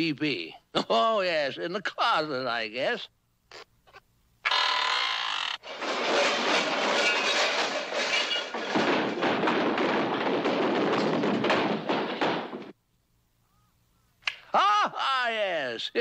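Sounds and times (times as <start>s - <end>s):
falling objects crashing and clattering: 5.6s - 12.8s.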